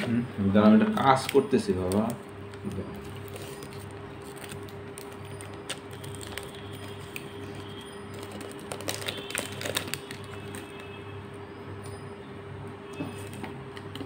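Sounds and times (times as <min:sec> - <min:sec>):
plastic wrapping crinkling: 0:00.9 - 0:11.0.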